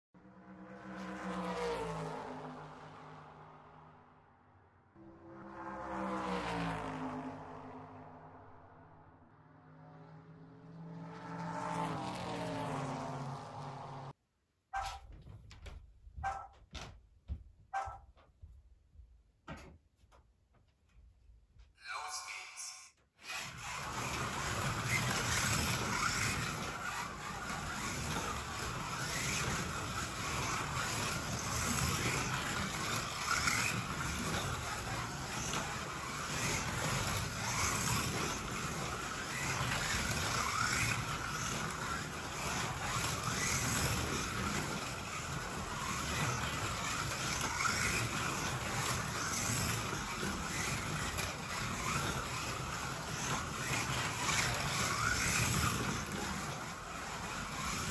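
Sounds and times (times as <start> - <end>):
cars rumbling in track slot: 23.2 - 57.9
slot car motors whining: 23.2 - 57.9.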